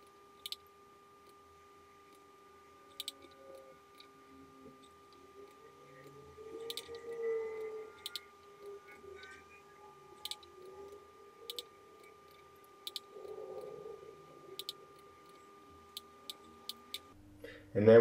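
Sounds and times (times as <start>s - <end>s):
computer mouse clicks: 0.4s - 1.4s, 2.9s - 4.1s, 4.8s - 9.3s, 10.2s - 13.7s, 14.6s - 17.1s
faint high tone: 3.0s - 16.7s.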